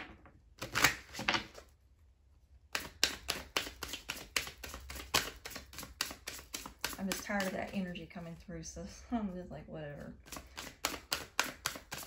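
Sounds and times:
cards shuffled clicking and slapping: 0:00.6 - 0:01.7, 0:02.7 - 0:07.9, 0:10.2 - 0:12.0
cards rustling: 0:02.7 - 0:08.4, 0:10.2 - 0:12.0.

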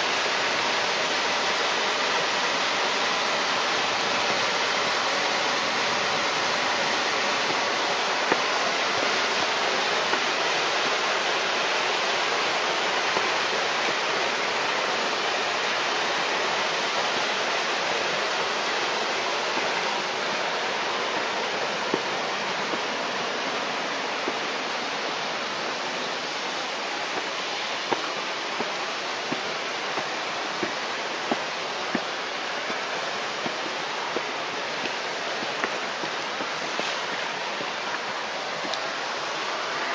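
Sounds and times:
water rushing: 0:00.0 - 0:39.9
footsteps on concrete steps: 0:33.4 - 0:38.8.

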